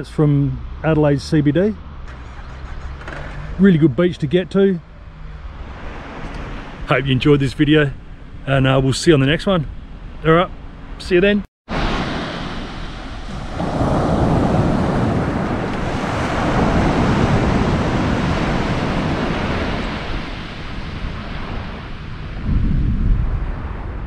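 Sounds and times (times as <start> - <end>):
wind: 0.0 - 24.0
surf: 10.2 - 24.0.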